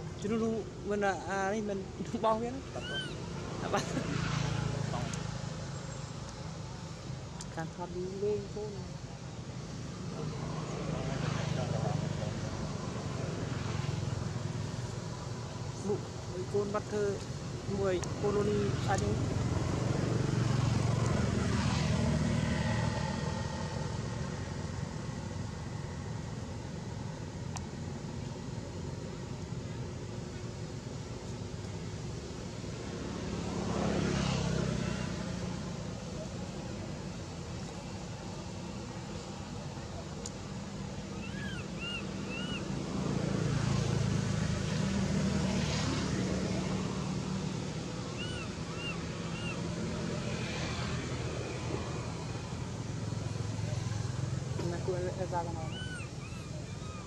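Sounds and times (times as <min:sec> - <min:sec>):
vehicle engine rumble: 0:00.0 - 0:57.0
vehicle engine rumbling: 0:34.7 - 0:57.0.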